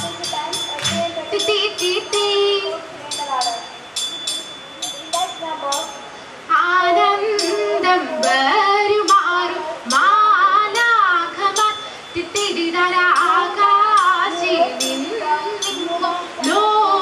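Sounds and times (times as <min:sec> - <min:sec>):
sharp beat strikes: 0:00.0 - 0:01.2
girls singing together: 0:00.0 - 0:17.0.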